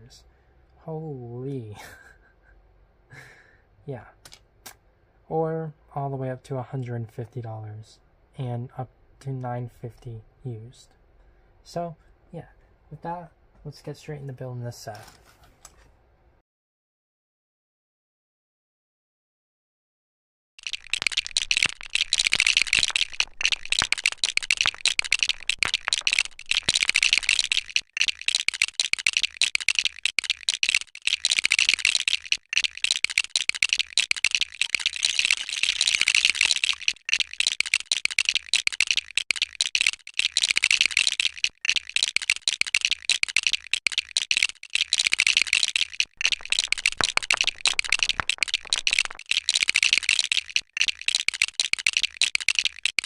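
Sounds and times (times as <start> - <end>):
plastic bricks clattering and clicking: 20.6 - 53.0.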